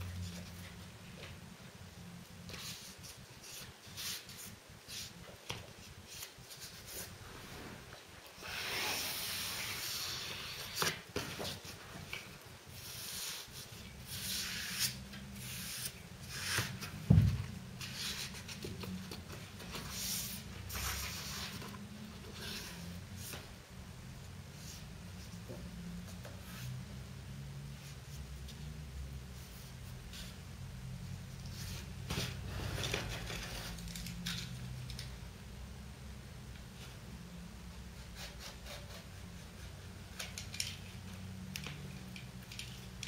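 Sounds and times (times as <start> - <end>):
dull thump: 17.1 - 17.4.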